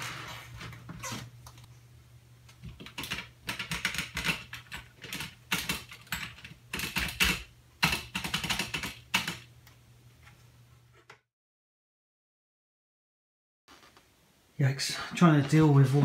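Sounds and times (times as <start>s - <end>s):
low steady hum: 0.0s - 3.5s.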